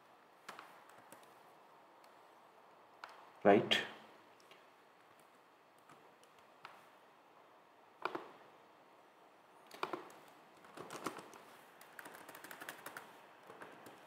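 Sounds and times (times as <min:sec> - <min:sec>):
keyboard keystrokes: 0:08.0 - 0:08.3, 0:09.7 - 0:14.0.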